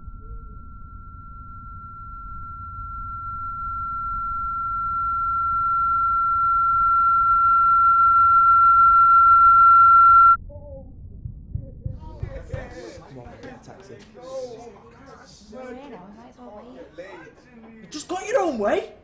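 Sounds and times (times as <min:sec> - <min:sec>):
high-pitched electronic tone: 0:00.0 - 0:10.4
low rumble: 0:00.0 - 0:12.6.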